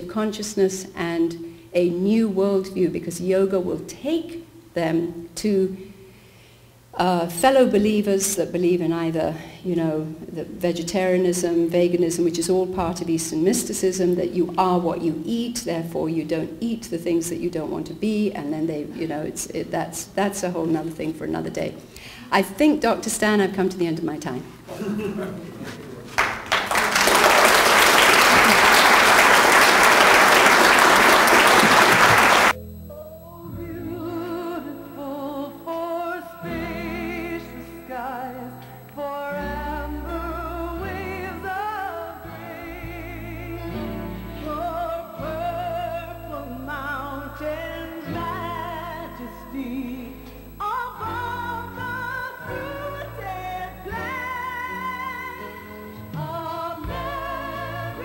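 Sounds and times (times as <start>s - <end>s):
audience applauding: 26.1s - 32.6s.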